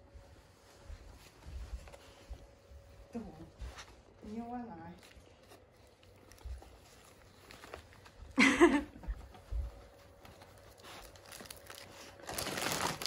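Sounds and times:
plastic bags rustling: 4.2 - 8.8, 9.9 - 13.0.

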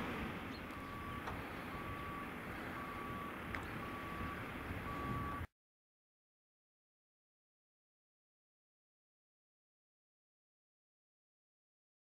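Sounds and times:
tractor engine running: 0.0 - 5.4
reversing alarm beeping: 0.6 - 5.5.

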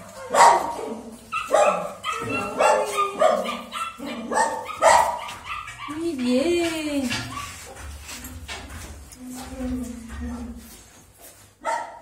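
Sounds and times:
dog barking: 0.2 - 6.0, 11.6 - 12.0.

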